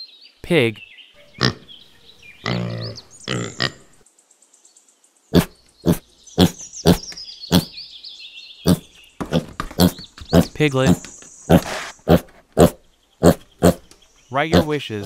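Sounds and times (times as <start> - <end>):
birds singing faintly: 0.0 - 15.0
piglets grunting sharply: 1.3 - 1.7, 2.4 - 3.9, 5.3 - 7.7, 8.7 - 13.9, 14.5 - 14.8
pigs grunting: 1.3 - 1.7, 2.4 - 4.0, 5.3 - 7.8, 8.6 - 15.0.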